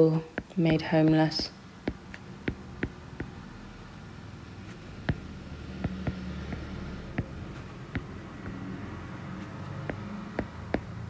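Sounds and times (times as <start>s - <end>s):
stylus tapping on glass screen: 0.4s - 3.4s, 5.0s - 8.7s, 9.8s - 11.0s.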